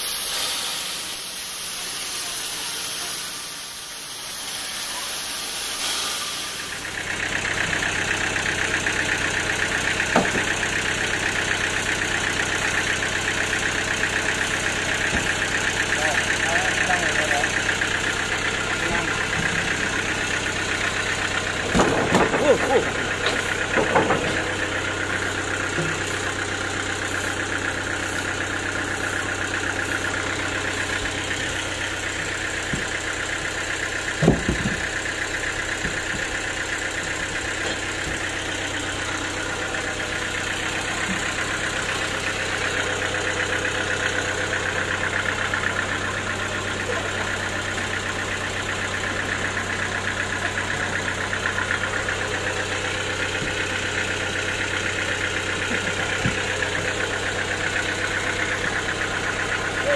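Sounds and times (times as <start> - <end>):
band saw machine hum: 0.0 - 59.9
short thump: 34.2 - 34.8.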